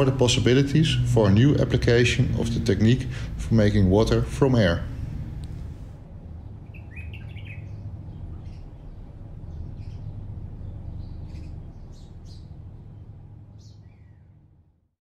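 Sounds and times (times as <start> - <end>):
low outdoor rumble: 0.0 - 15.0
small birds chirping: 6.4 - 14.5.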